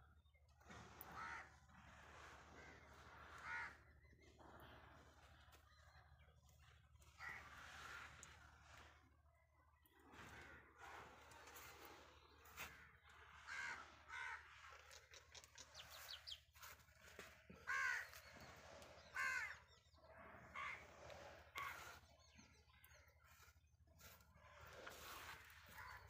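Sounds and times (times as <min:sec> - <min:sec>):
birds calling: 0:11.2 - 0:26.0.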